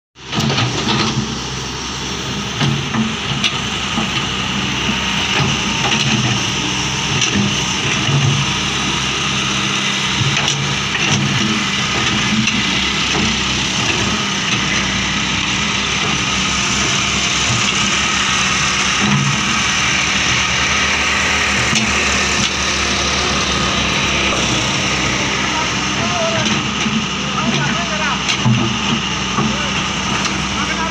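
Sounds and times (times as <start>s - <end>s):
excavator diesel engine running: 0.2s - 30.9s
high whine: 13.9s - 30.9s.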